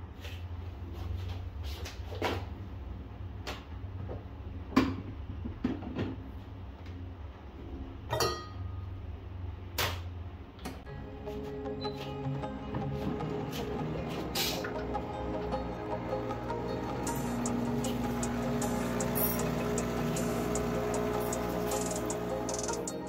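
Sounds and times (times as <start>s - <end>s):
low steady hum: 6.3s - 23.0s.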